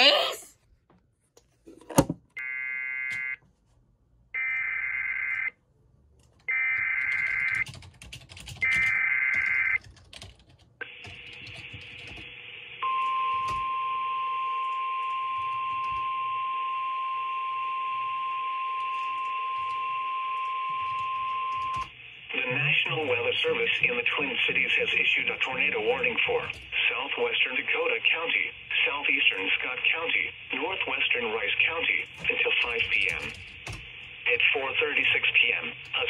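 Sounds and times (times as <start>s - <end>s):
radio hiss: 22.1s - 33.1s, 33.8s - 36.0s.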